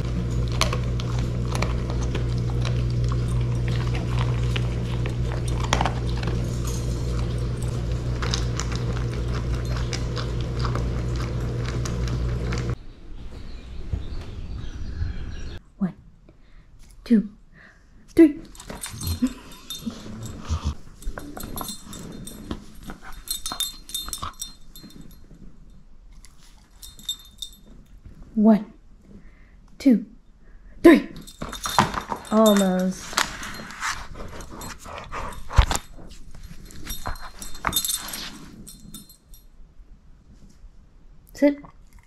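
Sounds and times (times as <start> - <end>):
metallic jingle: 0.0 - 11.2, 18.5 - 27.9, 31.1 - 39.6
dog rustling and scrabbling: 18.5 - 25.6, 26.2 - 28.2, 31.2 - 39.4
dog scuffling with toy: 31.2 - 39.1.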